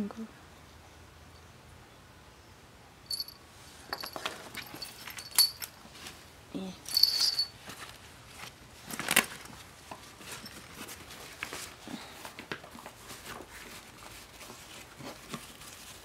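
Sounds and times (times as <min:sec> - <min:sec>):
small metal chain jingling: 0:03.1 - 0:05.8, 0:06.8 - 0:07.7.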